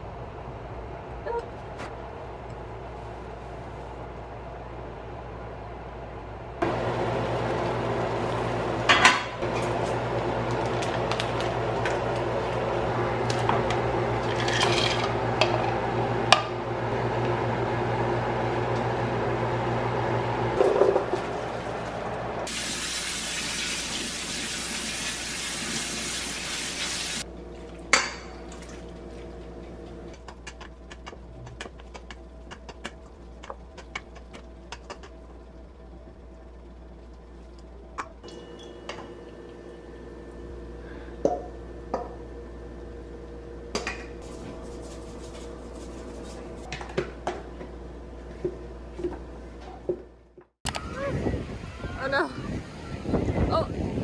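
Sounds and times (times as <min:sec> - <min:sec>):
water splashing into a colander: 0:20.9 - 0:29.3
water boiling in a pot: 0:20.9 - 0:30.2
low hum: 0:27.2 - 0:51.8.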